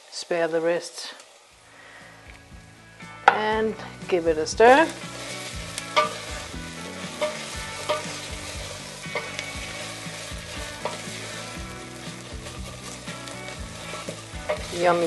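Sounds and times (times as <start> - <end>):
onions sizzling in oil: 0.0 - 15.0
wooden spoon knocking and scraping pot: 5.8 - 6.4, 7.0 - 11.2, 12.0 - 15.0.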